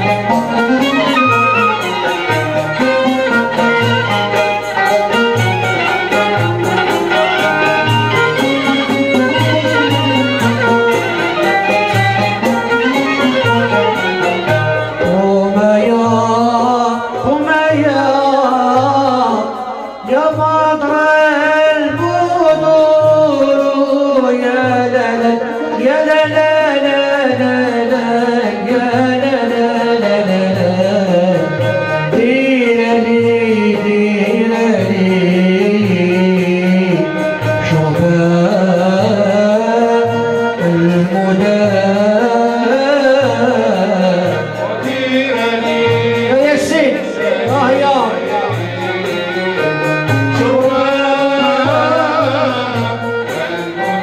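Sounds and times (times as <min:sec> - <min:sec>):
flute: 0:00.0 - 0:04.6
hand drum beat: 0:00.0 - 0:54.0
oud: 0:00.0 - 0:54.0
violin: 0:00.0 - 0:54.0.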